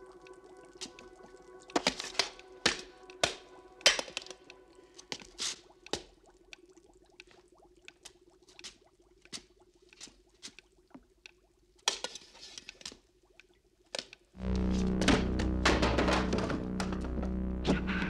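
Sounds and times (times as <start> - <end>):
faint steady hum: 0.0 - 5.9, 14.4 - 18.0.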